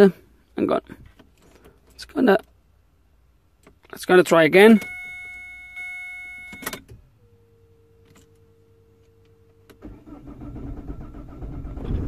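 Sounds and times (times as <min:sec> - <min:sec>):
faint steady hum: 0:04.7 - 0:10.1
starter cranking engine: 0:09.8 - 0:12.0.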